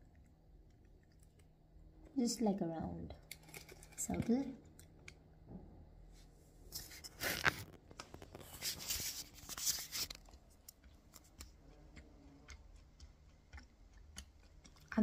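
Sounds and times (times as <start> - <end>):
candy crunching being chewed: 3.1 - 5.3, 6.9 - 15.0.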